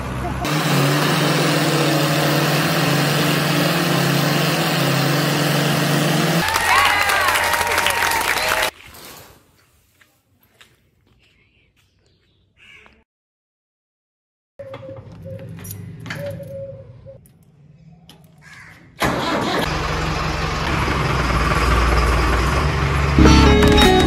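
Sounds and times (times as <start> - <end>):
tractor engines running: 0.0 - 8.7, 19.0 - 24.0.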